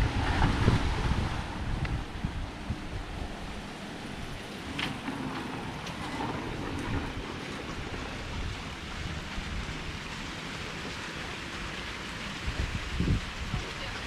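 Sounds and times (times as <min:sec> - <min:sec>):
wind on microphone: 0:00.0 - 0:11.0, 0:12.2 - 0:14.0
fountain water splashing: 0:06.5 - 0:14.0.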